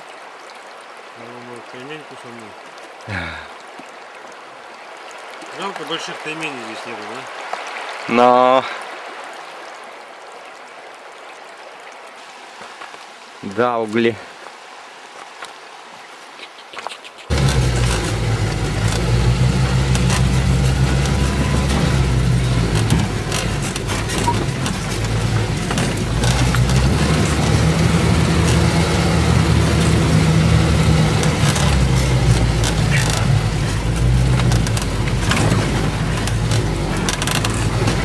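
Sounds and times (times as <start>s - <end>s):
knocks and rattles from bumps: 17.3s - 38.0s
vehicle engine drone: 17.3s - 38.0s.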